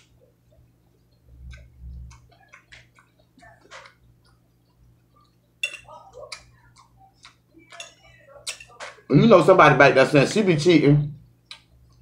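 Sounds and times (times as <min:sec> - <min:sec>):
chewing and lip smacks: 0:00.0 - 0:09.1, 0:11.4 - 0:12.0
fork clicking and scraping plate: 0:01.1 - 0:09.1.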